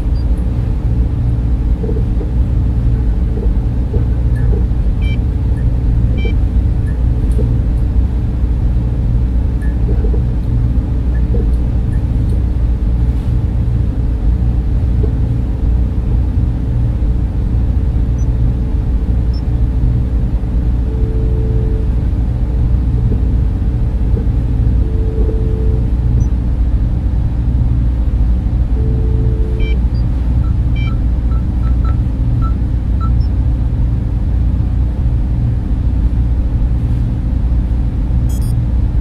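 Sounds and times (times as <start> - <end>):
machinery and fan hum: 0.0 - 39.0
faint short beeps: 38.3 - 38.6.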